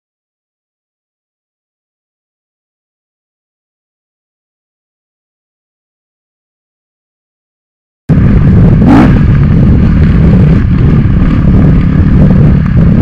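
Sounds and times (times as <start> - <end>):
dirt bike engine rumbling: 8.1 - 13.0.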